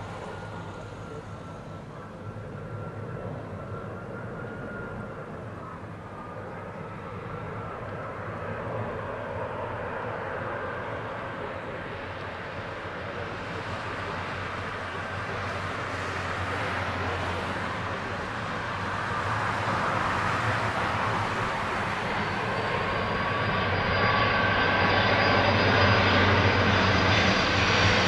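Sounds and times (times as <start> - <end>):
jet engines rumbling: 0.0 - 28.0.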